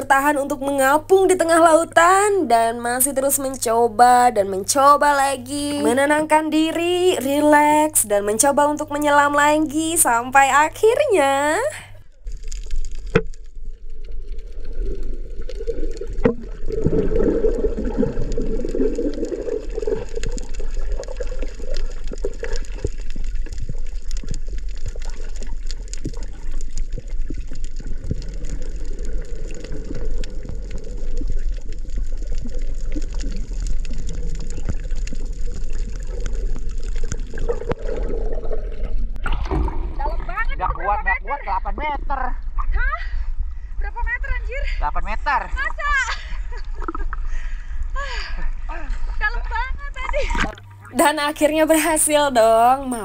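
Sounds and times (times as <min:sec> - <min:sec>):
muffled underwater rush: 0:12.2 - 0:51.3.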